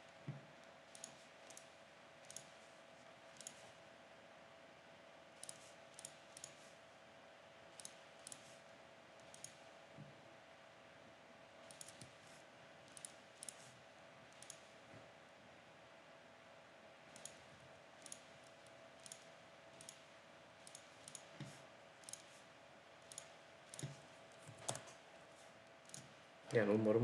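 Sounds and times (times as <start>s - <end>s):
faint steady hum: 0.0s - 27.0s
computer mouse clicking: 0.6s - 2.7s, 3.3s - 3.7s, 5.4s - 6.7s, 7.7s - 8.6s, 9.2s - 9.7s, 11.6s - 14.8s, 17.1s - 25.0s, 25.8s - 26.7s.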